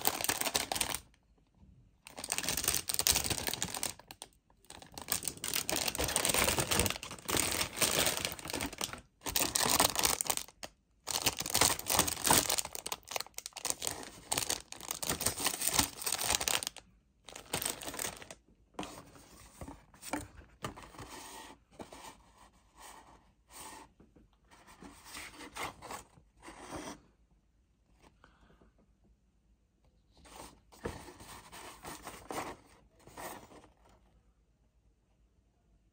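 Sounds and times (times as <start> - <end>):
plastic bags crinkling: 0.0 - 1.2, 2.0 - 18.4.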